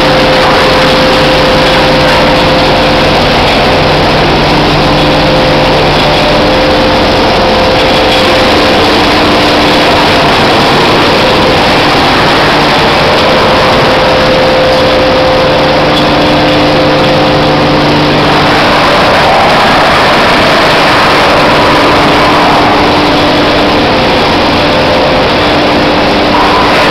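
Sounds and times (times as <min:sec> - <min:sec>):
loud industrial machinery din: 0:00.0 - 0:26.9
low steady hum: 0:00.0 - 0:26.9.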